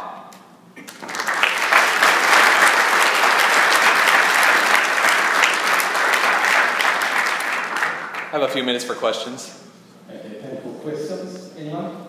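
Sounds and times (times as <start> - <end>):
audience applauding: 0.8 - 8.9.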